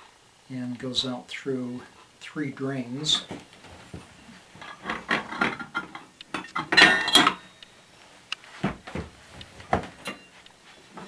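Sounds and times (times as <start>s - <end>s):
metallic ring: 6.5s - 7.6s, 10.0s - 10.4s.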